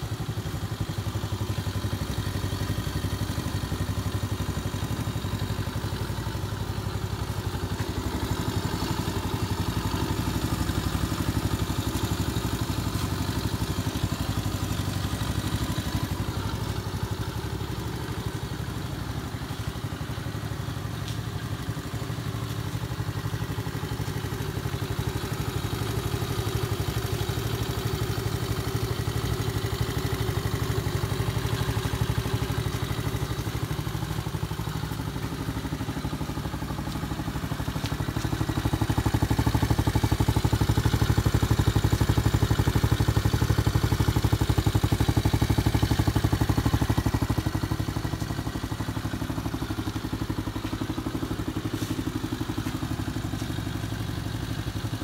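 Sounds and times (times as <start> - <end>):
atv engine idling: 0.0 - 55.0.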